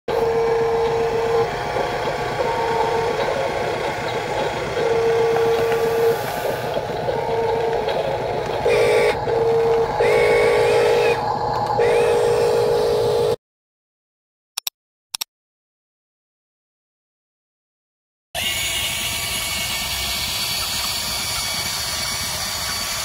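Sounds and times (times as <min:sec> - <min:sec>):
electric motor whirring: 0:00.1 - 0:13.4
fast pulsing beep: 0:00.2 - 0:11.2.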